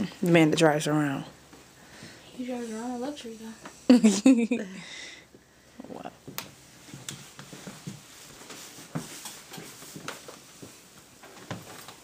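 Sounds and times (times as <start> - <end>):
footsteps: 5.8 - 12.0.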